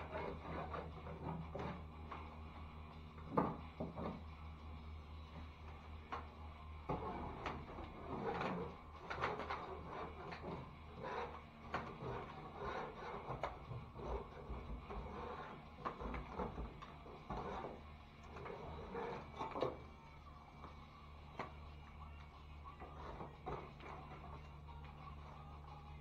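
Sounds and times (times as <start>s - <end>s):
scraper scraping ceiling tape: 6.9s - 19.8s.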